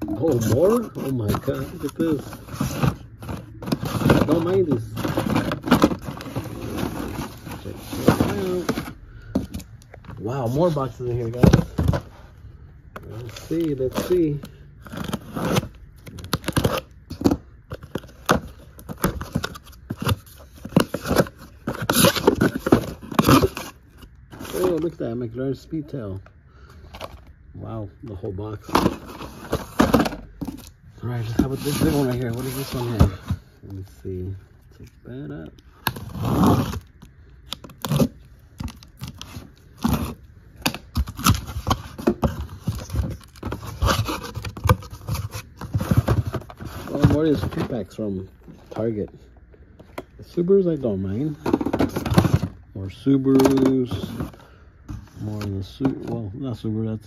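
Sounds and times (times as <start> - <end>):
plastic blister packs rustling: 0.0 - 12.2, 13.0 - 25.1, 28.4 - 49.2, 49.8 - 56.2
cardboard box being opened: 0.1 - 9.7, 28.7 - 33.4.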